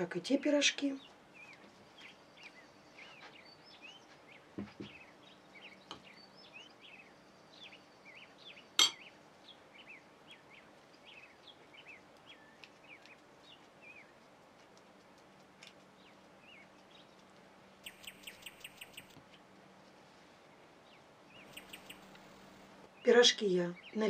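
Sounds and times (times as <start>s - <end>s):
faint bird chirps: 0.9s - 14.2s, 17.8s - 19.2s, 20.9s - 24.0s
sharp clink of a bowl: 8.8s - 9.0s.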